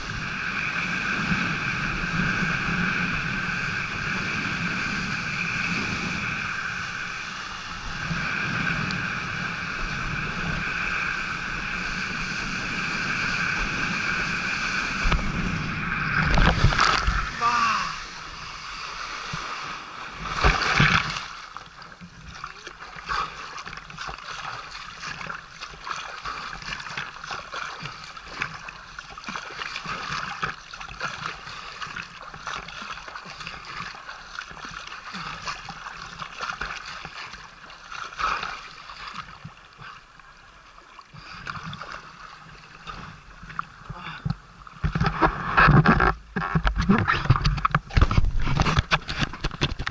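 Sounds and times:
wind on microphone: 0:00.0 - 0:37.7, 0:41.2 - 0:49.9
water rushing and splashing: 0:00.0 - 0:49.9.

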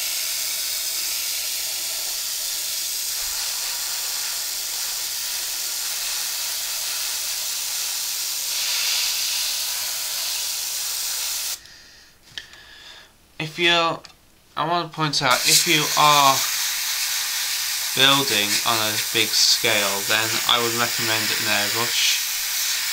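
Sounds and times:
airbrush hissing: 0:00.0 - 0:11.7, 0:15.3 - 0:22.9.

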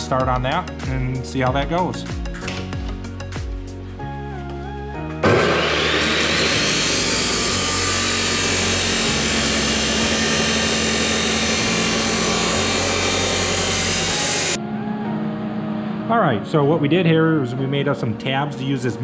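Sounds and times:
chop saw grinding through steel: 0:05.2 - 0:14.6.

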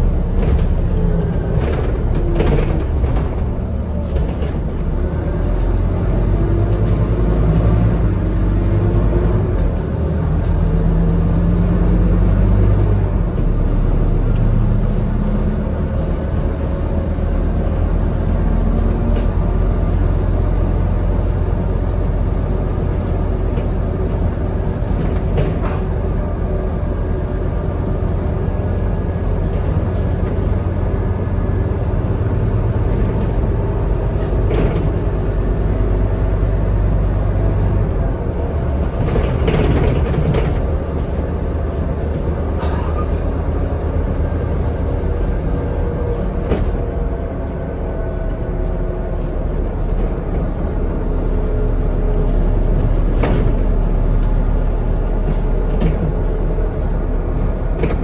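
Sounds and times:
bus engine and road drone: 0:00.0 - 0:58.0.

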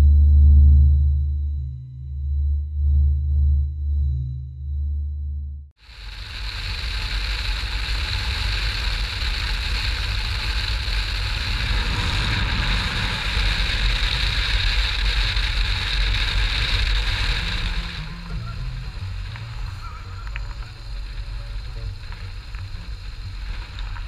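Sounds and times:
motorcycle engine low rumble: 0:00.0 - 0:24.0
wind rush over microphone: 0:05.8 - 0:24.0.

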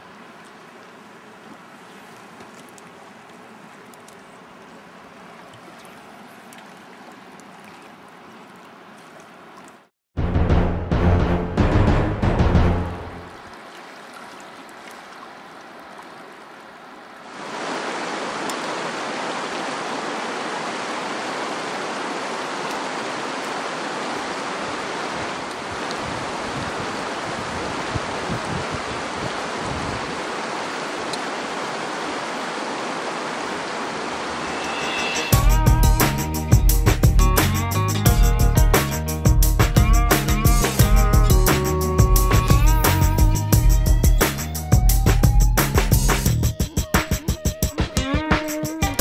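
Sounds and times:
background music: 0:10.2 - 0:13.4, 0:34.7 - 0:49.0
river flowing over rocks: 0:13.3 - 0:35.4.

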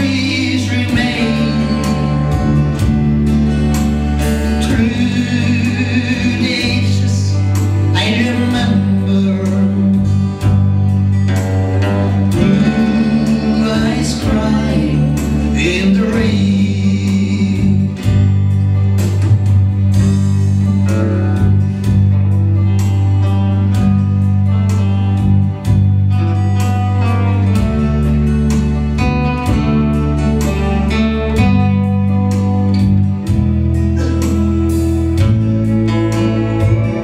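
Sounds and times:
person singing: 0:00.0 - 0:03.1, 0:04.2 - 0:10.6, 0:12.0 - 0:18.4
strummed acoustic guitar: 0:00.0 - 0:37.0
sustained bass notes: 0:00.0 - 0:37.0.

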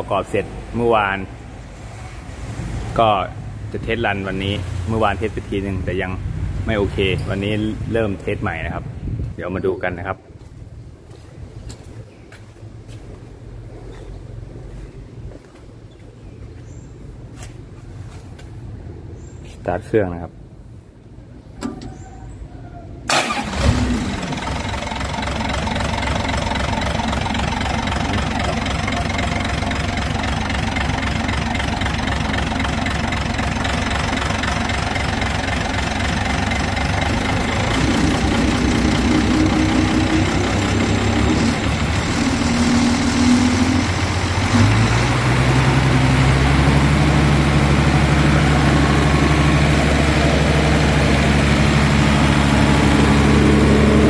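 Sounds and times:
diesel engine starting: 0:23.0 - 0:54.0
diesel engine running: 0:23.1 - 0:54.0.

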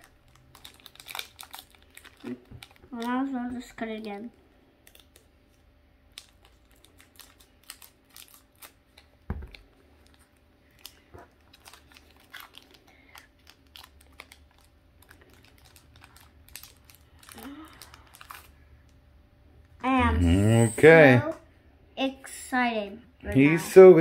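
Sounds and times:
foil pack crinkling: 0:00.0 - 0:03.4, 0:04.8 - 0:05.2, 0:06.1 - 0:19.0.

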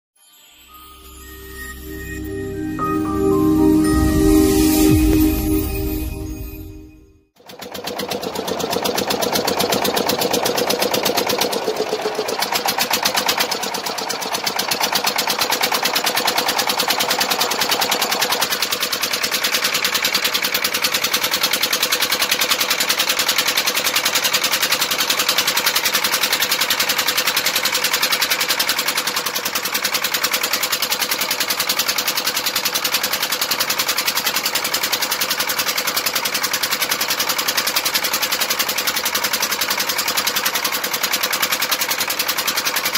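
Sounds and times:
diesel boat engine chugging: 0:07.5 - 0:42.9.

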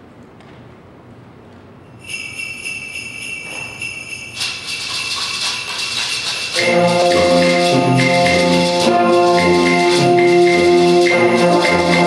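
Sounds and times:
high shaking percussion: 0:01.9 - 0:12.0
sleigh bells shaking: 0:01.9 - 0:12.0
concert band playing: 0:04.5 - 0:12.0.

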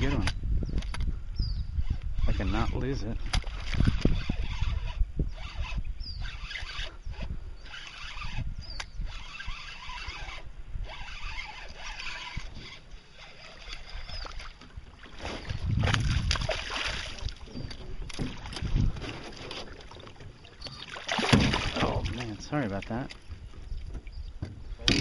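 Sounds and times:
low rumbling handling noise: 0:00.0 - 0:25.0
water sounds: 0:09.0 - 0:25.0
fish thrashing and splashing: 0:10.9 - 0:23.3.

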